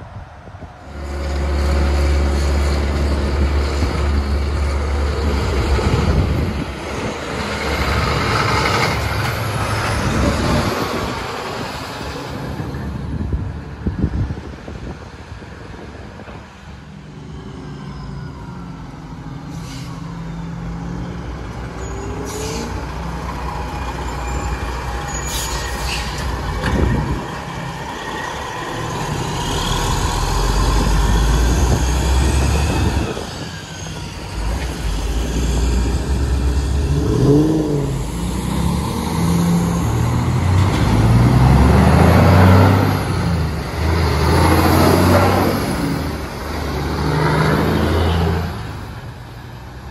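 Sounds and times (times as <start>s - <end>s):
diesel truck engines revving: 0.0s - 49.9s.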